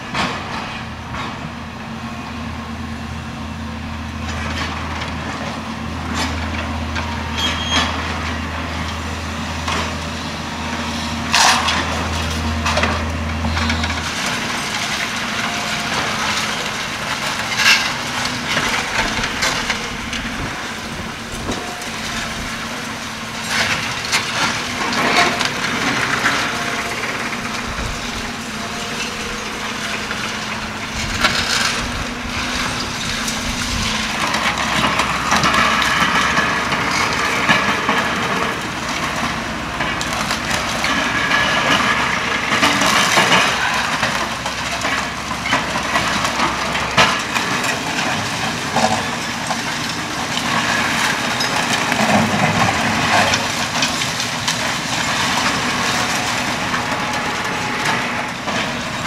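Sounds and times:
debris crushing and cracking: 10.6s - 59.0s.

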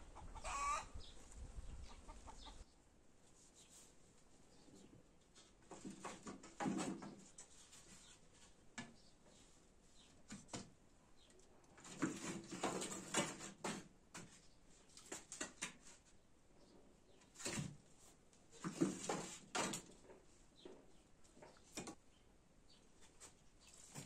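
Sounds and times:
wooden sticks knocking and scraping: 5.4s - 9.0s, 11.8s - 16.1s, 18.6s - 20.3s.

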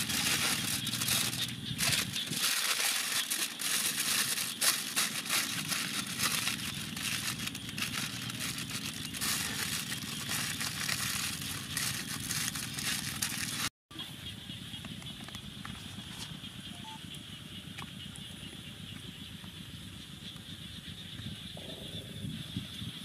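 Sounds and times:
aluminium foil crinkling: 0.0s - 13.7s.

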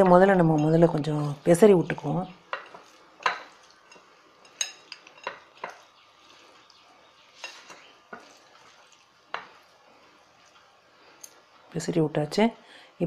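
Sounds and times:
spoon clinking against a bowl: 0.0s - 1.0s, 2.5s - 5.9s.

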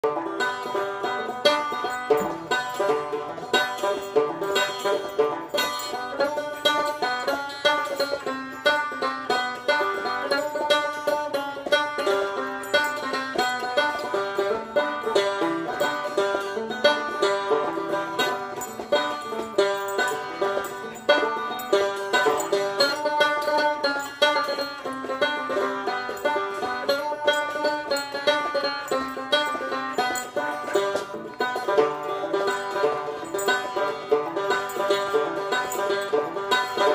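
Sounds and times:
fast bluegrass banjo music: 0.0s - 36.9s.

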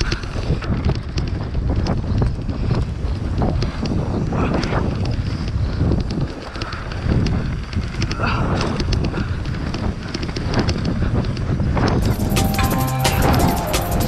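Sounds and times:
wind buffeting microphone: 0.0s - 12.2s
bike rattling clicks and knocks: 0.0s - 14.0s.

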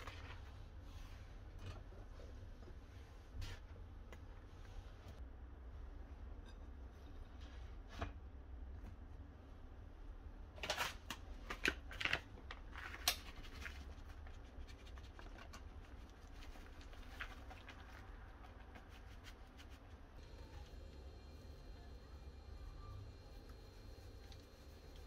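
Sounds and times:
packet crinkling: 10.6s - 14.4s.

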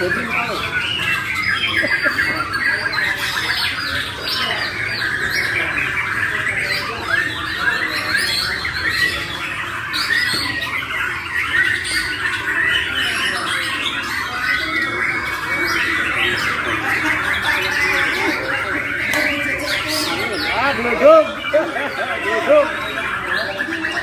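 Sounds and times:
birds singing in chorus: 0.0s - 24.0s.

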